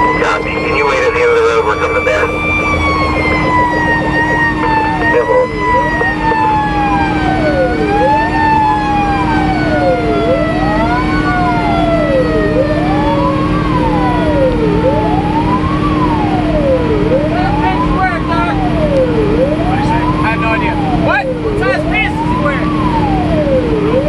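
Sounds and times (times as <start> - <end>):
second siren tone sliding: 0.0 - 17.7
engine and road noise: 0.0 - 24.0
siren wailing: 0.0 - 24.0.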